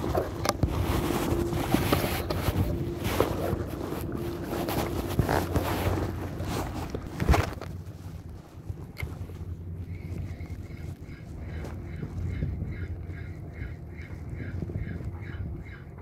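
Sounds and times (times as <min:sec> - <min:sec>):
handling knocks and rustles: 0:00.0 - 0:12.7
wind buffeting microphone: 0:00.0 - 0:16.0.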